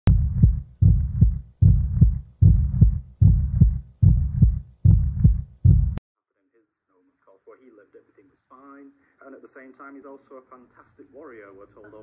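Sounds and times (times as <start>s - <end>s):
heartbeat thumps: 0.0s - 6.0s.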